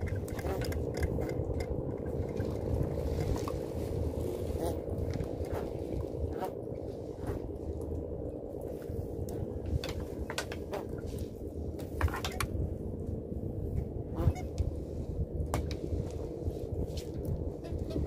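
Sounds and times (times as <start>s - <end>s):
knocks and clicks of net hauling: 0.0s - 3.6s.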